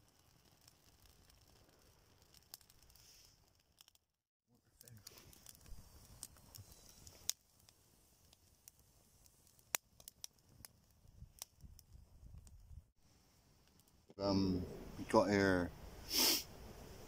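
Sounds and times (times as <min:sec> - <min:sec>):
sharp fire pops: 0:00.0 - 0:04.0, 0:04.8 - 0:12.8
twig fire crackling: 0:00.0 - 0:17.0.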